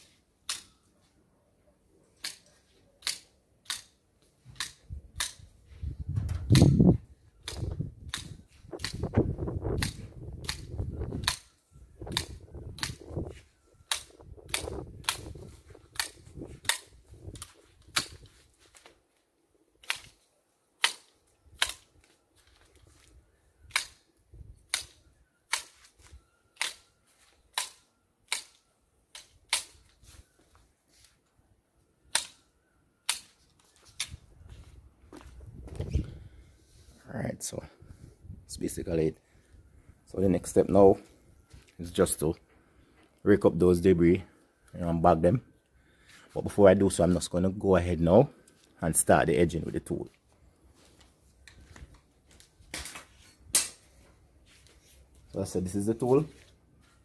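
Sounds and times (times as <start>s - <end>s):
pruning shears snipping stems: 0.0s - 0.9s, 2.2s - 4.0s, 13.8s - 18.9s, 19.8s - 22.1s, 23.7s - 30.0s.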